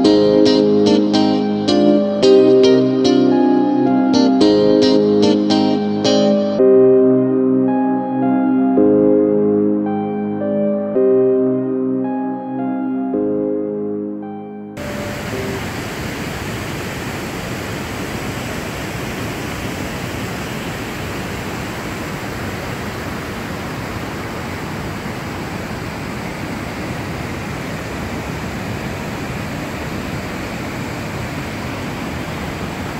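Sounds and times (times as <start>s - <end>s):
waterfall and river rushing: 14.8s - 32.9s.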